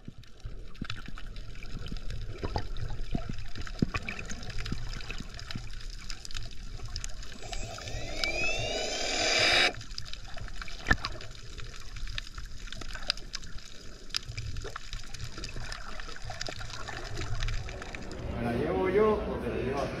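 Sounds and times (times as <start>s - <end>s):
electric motor whine: 7.3s - 9.8s.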